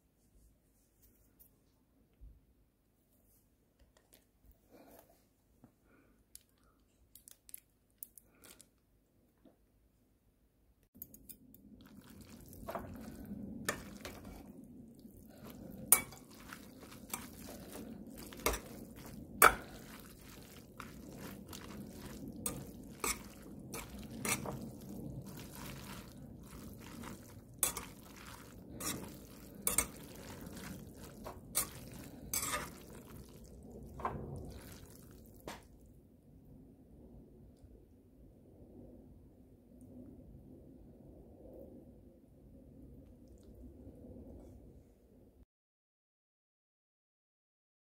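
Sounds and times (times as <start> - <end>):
chopsticks stirring noodles: 11.0 - 35.4.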